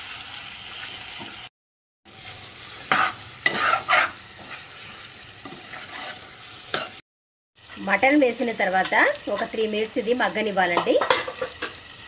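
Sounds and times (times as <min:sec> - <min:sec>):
meat sizzling in oil: 0:00.0 - 0:01.5, 0:02.1 - 0:07.0, 0:07.6 - 0:12.0
steel spatula scraping pot: 0:02.8 - 0:07.0.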